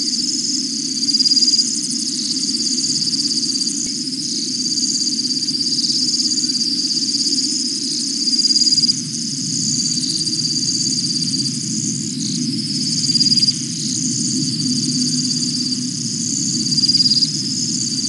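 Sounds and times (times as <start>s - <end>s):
frogs and insects trilling: 0.0s - 18.0s.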